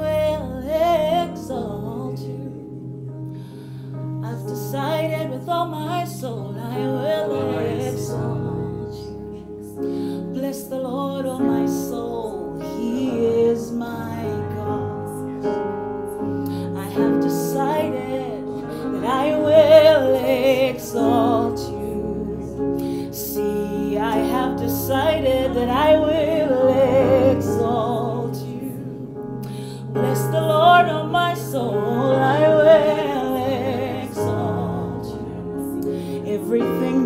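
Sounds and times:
held instrumental chords: 0.0s - 37.0s
woman singing with vibrato: 16.6s - 37.0s.

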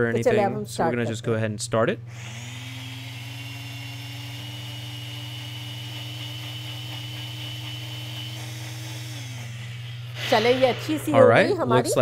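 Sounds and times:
electric blender whirring: 2.1s - 12.0s.

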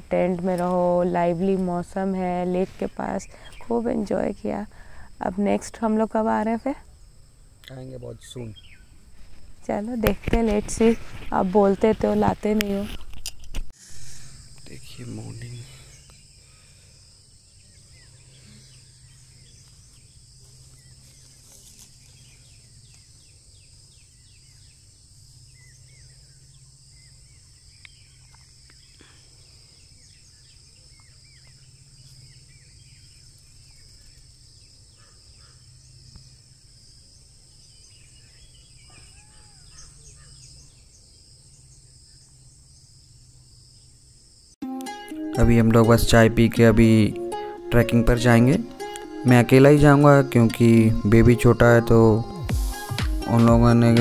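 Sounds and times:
bird chirps and calls: 2.6s - 3.9s, 7.6s - 9.0s, 37.2s - 41.8s
high-pitched insect drone: 13.8s - 38.5s, 45.4s - 54.0s.

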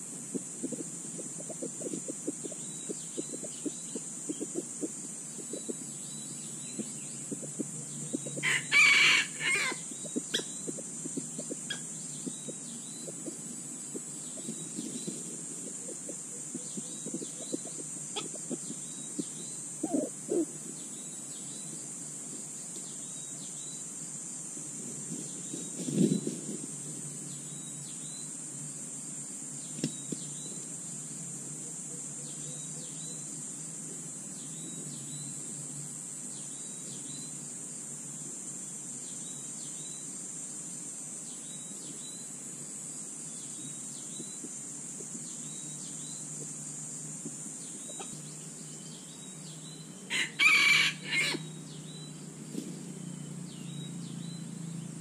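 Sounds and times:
faint chirps: 0.0s - 55.0s
high insect drone: 0.0s - 55.0s
rooster crowing: 8.4s - 9.9s, 50.1s - 51.6s.

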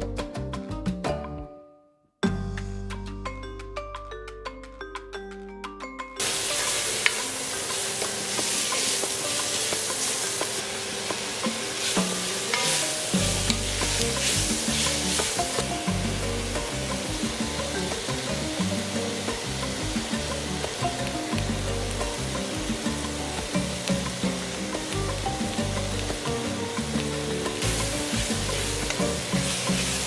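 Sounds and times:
wooden spoon scraping: 6.2s - 18.1s, 27.3s - 30.0s
vegetables sizzling in hot oil: 6.2s - 30.0s.

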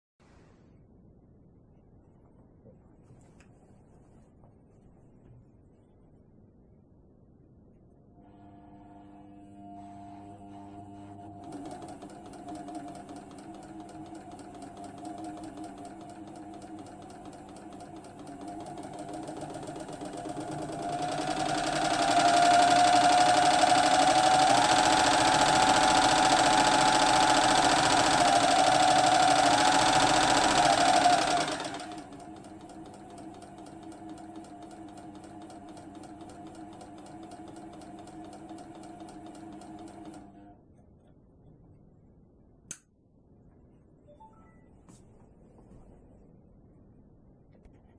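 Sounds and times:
sewing machine motor running: 8.3s - 40.4s.

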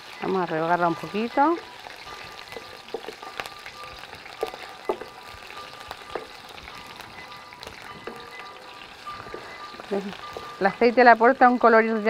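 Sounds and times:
pork sizzling in oil: 0.0s - 12.0s
spatula clicks and knocks: 4.4s - 5.2s.

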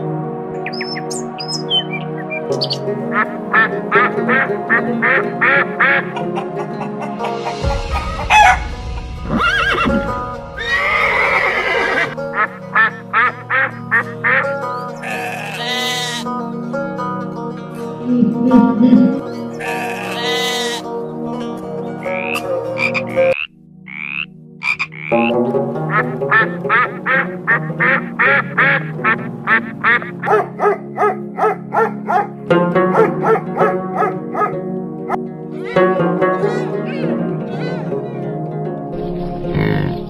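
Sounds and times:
background music: 0.0s - 40.0s
duck calling: 1.6s - 7.4s, 10.7s - 16.3s, 19.4s - 20.9s, 22.0s - 32.2s
sheep and lambs bleating: 14.3s - 16.3s, 19.2s - 20.9s.

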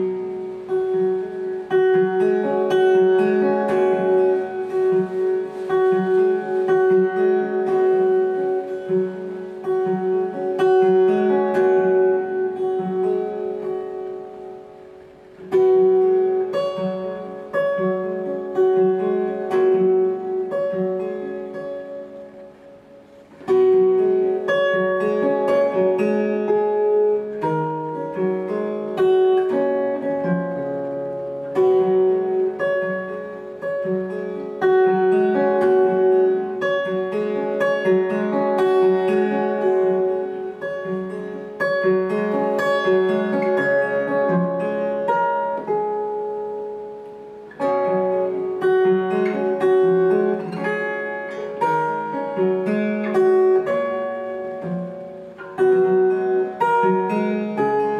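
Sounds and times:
acoustic guitar plucked: 0.0s - 57.9s.

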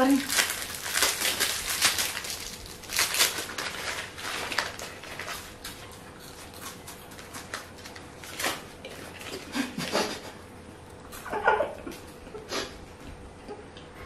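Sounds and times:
plastic wrappers crinkling: 0.0s - 9.6s.

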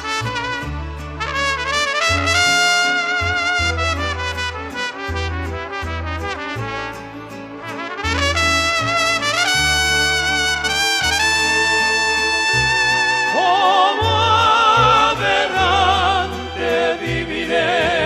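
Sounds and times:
trumpets playing melody: 0.0s - 16.7s
violins: 10.1s - 18.0s
low bass notes: 14.0s - 18.0s.

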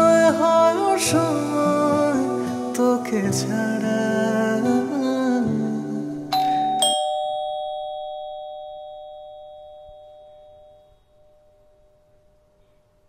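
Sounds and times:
doorbell ding-dong chime: 6.3s - 12.4s.

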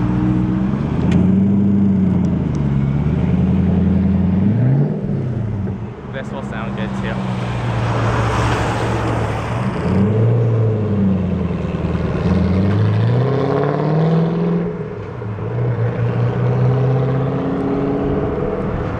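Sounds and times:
sports car accelerating hard: 7.1s - 18.9s.

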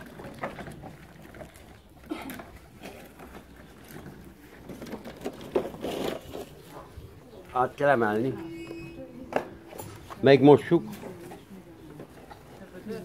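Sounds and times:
plastic wheel rumbling: 0.0s - 6.8s.

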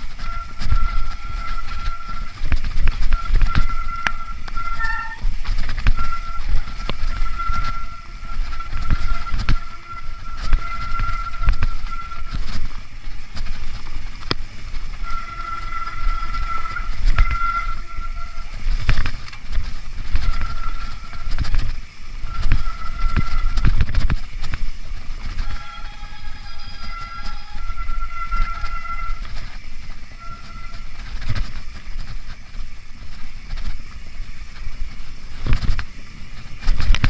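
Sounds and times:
high steady tone: 0.0s - 14.4s, 15.0s - 19.4s
bike rattling and knocking: 0.0s - 37.0s
wind rumbling on microphone: 0.0s - 37.0s.

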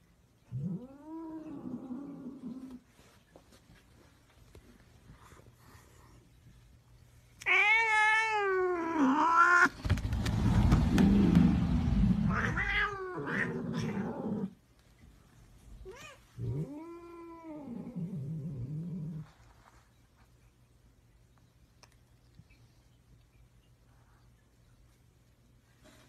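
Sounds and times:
cats yowling and tussling: 0.4s - 2.9s, 7.4s - 14.6s, 15.7s - 19.3s.

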